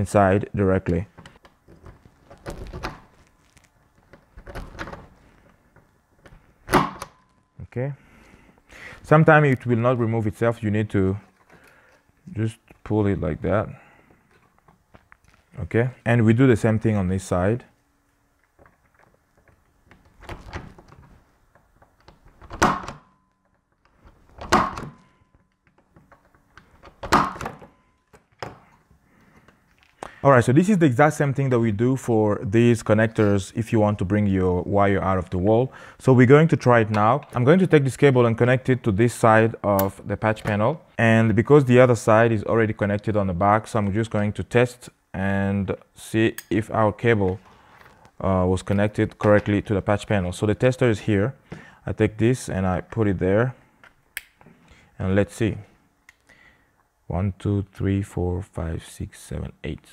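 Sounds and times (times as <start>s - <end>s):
soft clicks of tool and wires: 53.8s - 54.6s, 56.0s - 56.9s.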